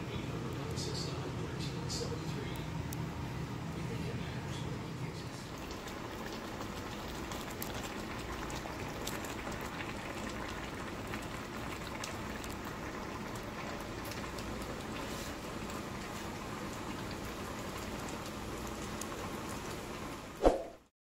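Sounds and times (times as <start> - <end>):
liquid bubbling in skillet: 5.4 - 20.9.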